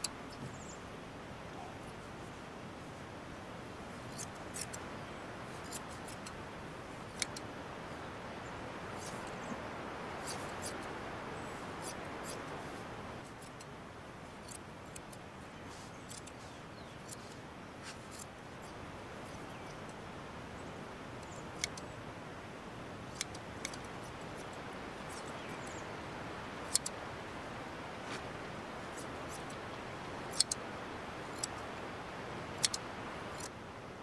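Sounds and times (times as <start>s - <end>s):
steady background hiss: 0.0s - 34.0s
hand shears snipping fleece: 28.0s - 28.3s.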